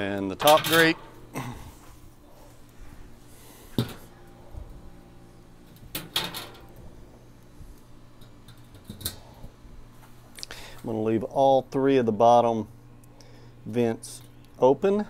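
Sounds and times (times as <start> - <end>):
metal grates clanking: 0.2 - 1.2, 5.7 - 6.8.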